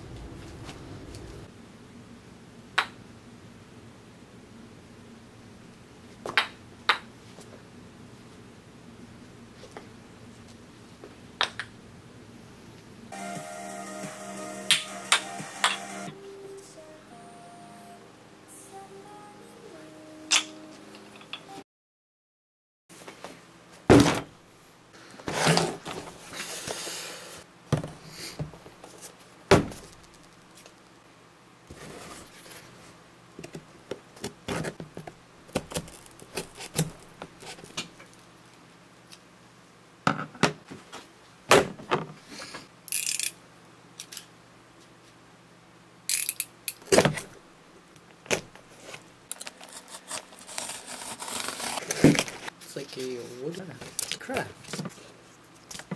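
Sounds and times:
cardboard box thunks on desk: 0:23.9 - 0:24.3, 0:29.5 - 0:29.9
cardboard scraping: 0:25.2 - 0:26.8, 0:31.7 - 0:32.8, 0:48.7 - 0:52.5.

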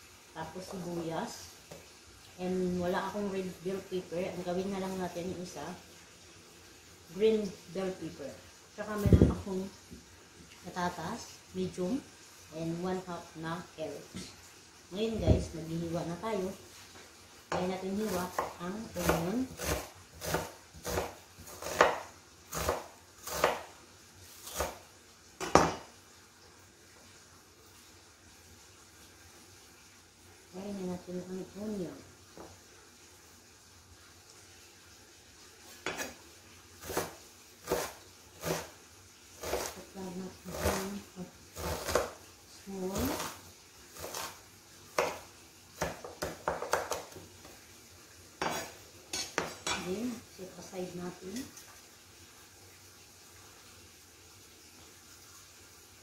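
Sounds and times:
knife chopping on cutting board: 0:17.5 - 0:23.7, 0:25.4 - 0:25.8, 0:45.0 - 0:45.2, 0:45.8 - 0:47.2.

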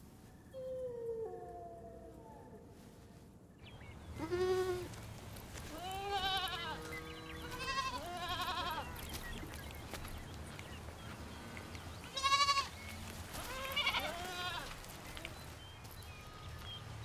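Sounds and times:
goats bleating: 0:04.2 - 0:05.0, 0:05.6 - 0:09.1, 0:12.1 - 0:14.8.

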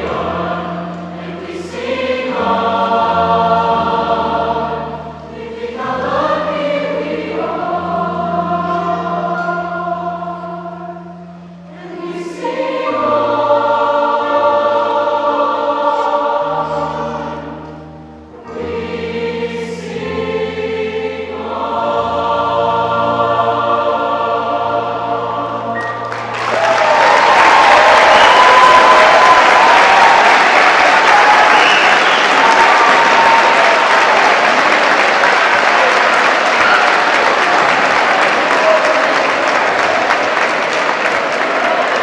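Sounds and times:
mixed choir singing in harmony: 0:00.0 - 0:42.0.

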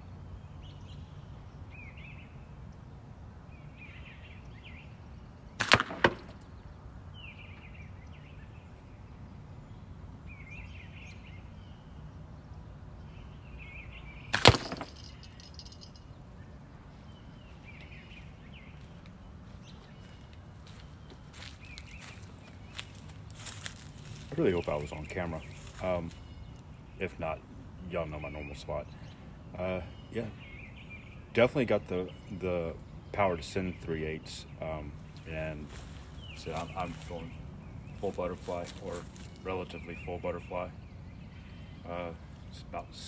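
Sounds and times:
slingshot ball striking catch box: 0:14.3 - 0:15.1.

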